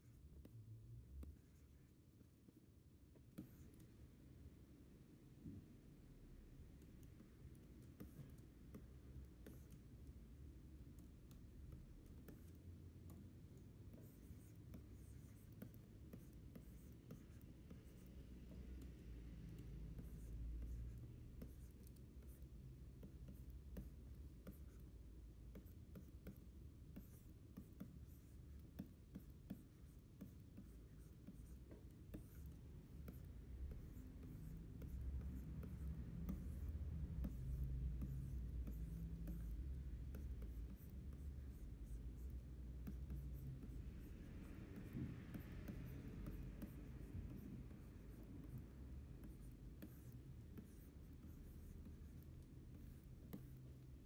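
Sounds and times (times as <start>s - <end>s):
stylus scratching on screen: 11.0s - 54.0s.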